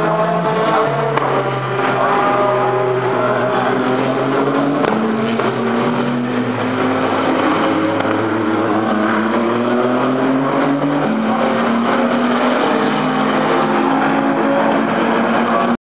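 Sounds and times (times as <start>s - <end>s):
racing car engines revving: 0.0s - 15.8s.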